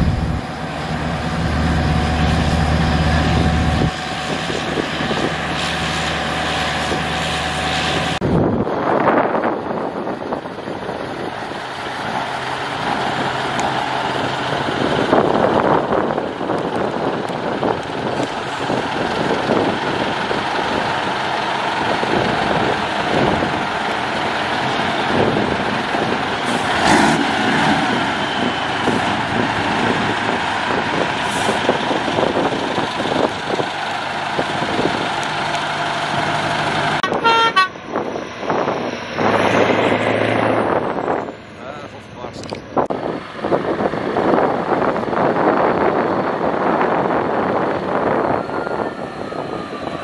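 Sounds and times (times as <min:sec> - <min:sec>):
diesel truck driving past: 0:00.0 - 0:50.0
truck horn toot: 0:37.0 - 0:38.0.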